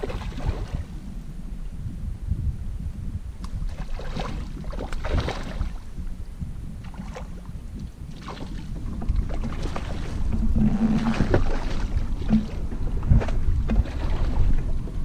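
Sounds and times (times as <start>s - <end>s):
low hum: 0.0s - 15.0s
wind and water rumble: 0.0s - 15.0s
short knocks or splashes: 3.6s - 5.7s, 8.1s - 14.6s.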